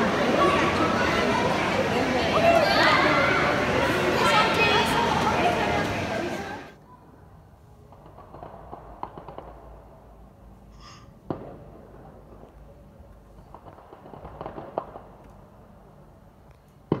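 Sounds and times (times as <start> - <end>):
fireworks popping and crackling: 7.9 - 10.0, 11.3 - 15.5
fireworks bang: 11.3 - 12.5, 13.4 - 15.2.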